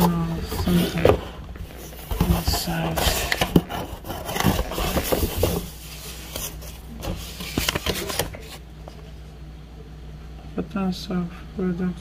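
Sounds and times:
cardboard and paper rustling: 0.0 - 9.2.

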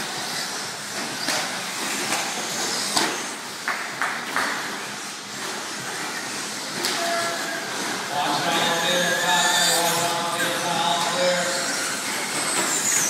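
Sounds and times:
rc trucks motor and tyre hiss: 0.0 - 3.4, 11.4 - 13.0.

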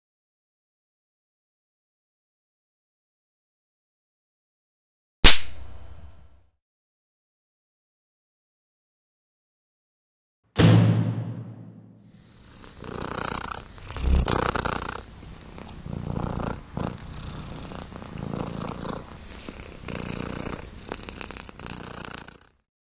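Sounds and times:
cat purring: 12.1 - 22.6.

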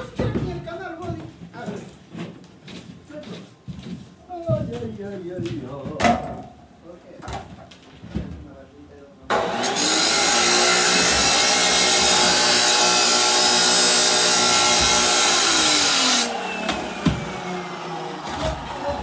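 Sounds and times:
cut-off saw grinding steel: 9.3 - 19.0.

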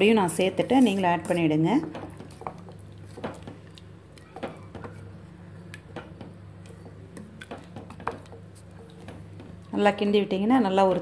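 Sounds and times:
wooden spatula scraping pot: 0.0 - 3.4
steady low hum: 0.0 - 11.0.

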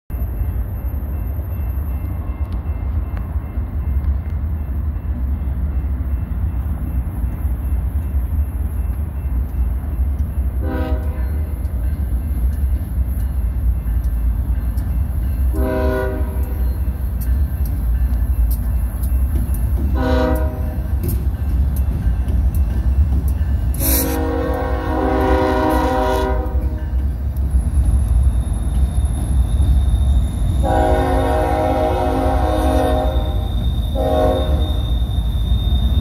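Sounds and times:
diesel locomotives rumbling: 0.1 - 36.0
locomotive horn blasts: 10.6 - 11.5, 15.5 - 16.6, 20.0 - 20.8, 23.8 - 26.9, 30.6 - 34.8.

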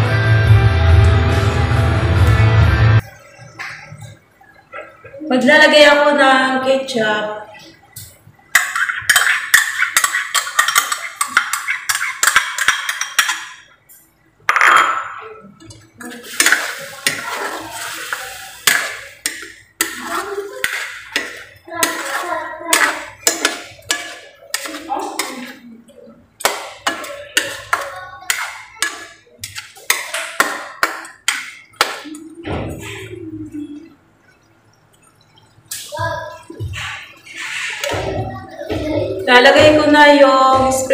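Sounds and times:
metal ladle scraping wok: 8.6 - 13.3, 16.1 - 25.5.

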